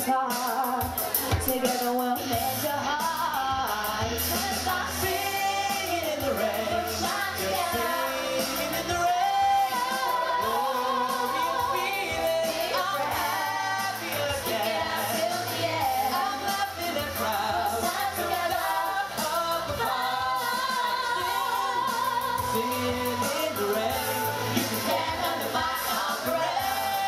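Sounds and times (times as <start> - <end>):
lead voices singing into microphones: 0.0 - 27.0
musical accompaniment: 0.0 - 27.0
choir singing: 1.4 - 27.0.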